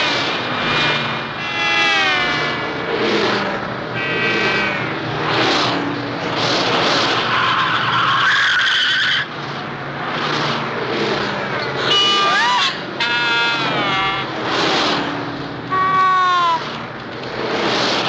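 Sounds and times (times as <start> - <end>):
cars rushing past: 0.0 - 18.0
tires screeching: 0.0 - 18.0
passing car horn: 1.4 - 2.8, 3.9 - 4.9, 11.8 - 14.8, 15.7 - 16.8.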